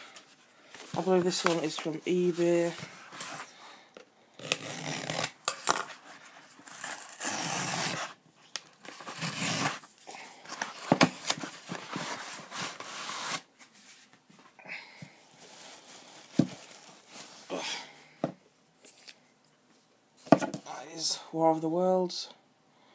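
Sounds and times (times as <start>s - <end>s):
cardboard scraping and tearing: 4.4s - 8.2s, 8.8s - 9.9s, 10.5s - 13.5s.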